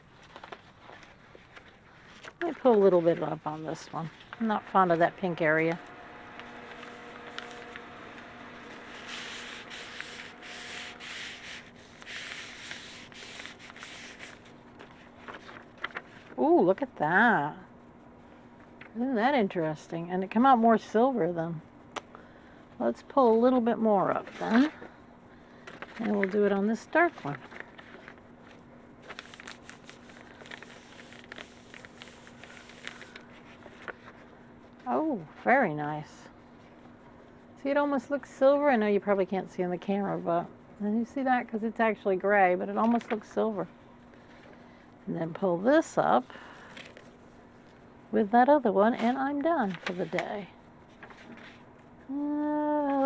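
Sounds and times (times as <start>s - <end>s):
papery scrubbing with tissue: 0.0s - 16.4s, 29.0s - 34.3s
faint steady hum: 0.0s - 53.0s
hands rubbing paper: 0.2s - 16.4s, 29.0s - 34.2s, 48.8s - 51.7s.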